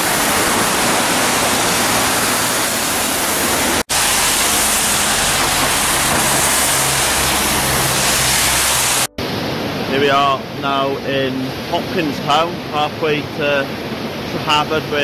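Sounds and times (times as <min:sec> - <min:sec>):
river rushing over rocks: 0:00.0 - 0:10.6
low hum: 0:00.1 - 0:10.6.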